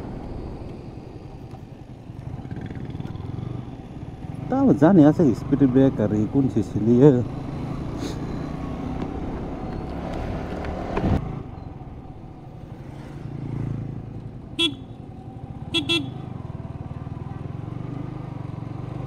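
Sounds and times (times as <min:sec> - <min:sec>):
horn toots: 0:14.6 - 0:15.0, 0:15.7 - 0:16.2.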